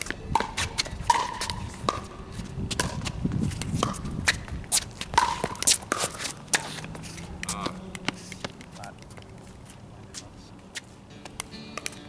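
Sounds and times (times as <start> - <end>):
shoe scuffs on court: 1.4 - 7.4.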